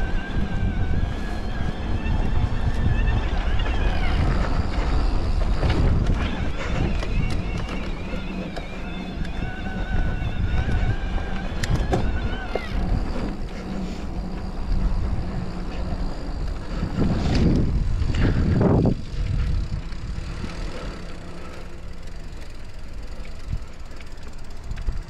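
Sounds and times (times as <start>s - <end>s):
bike tyres rumbling on dirt: 0.0s - 25.0s
wind on microphone: 0.0s - 25.0s.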